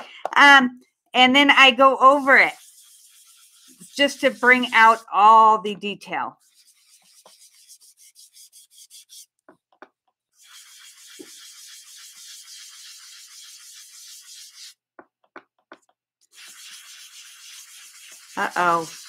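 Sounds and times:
sponge scrubbing on cardstock: 0:01.6 - 0:09.4, 0:10.3 - 0:14.8, 0:16.3 - 0:19.0.

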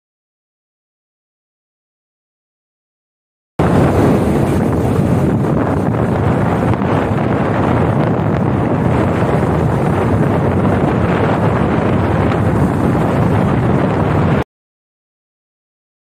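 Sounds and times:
wind noise on microphone: 0:03.6 - 0:14.5.

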